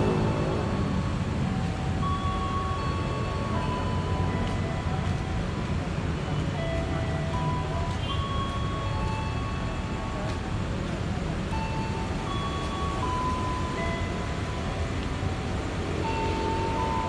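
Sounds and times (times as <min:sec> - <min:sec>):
slow melody of long notes: 0:00.0 - 0:17.0.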